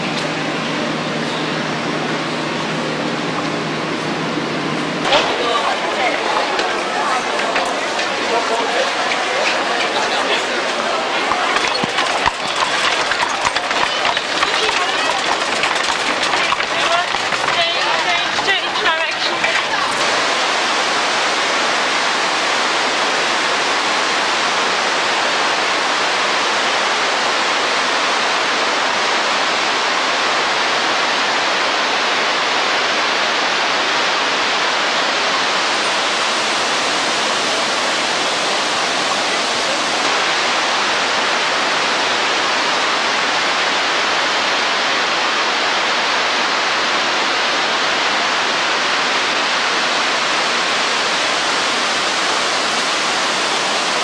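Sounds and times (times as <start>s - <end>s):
water pouring over weir: 7.6s - 23.9s.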